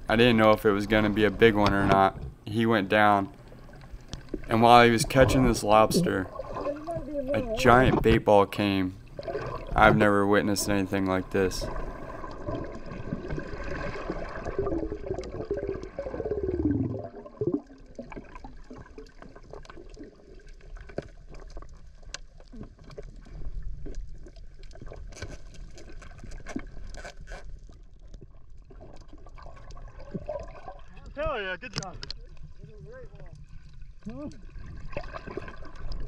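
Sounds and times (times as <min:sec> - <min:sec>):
underwater bubbling gurgle: 0:03.3 - 0:08.2, 0:09.0 - 0:31.2, 0:32.0 - 0:36.0
low underwater rumble: 0:03.3 - 0:26.9, 0:31.9 - 0:36.0.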